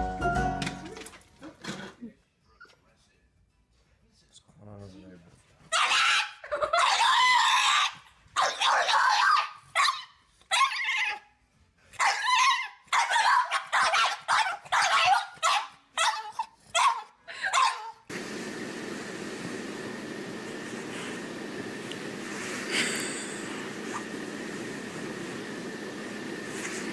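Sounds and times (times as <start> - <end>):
puppy howling: 5.8 - 9.6.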